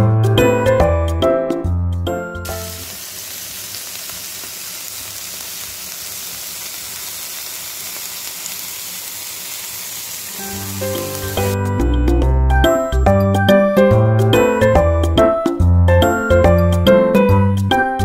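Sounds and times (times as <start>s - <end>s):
meat sizzling on a griddle: 2.5s - 11.6s.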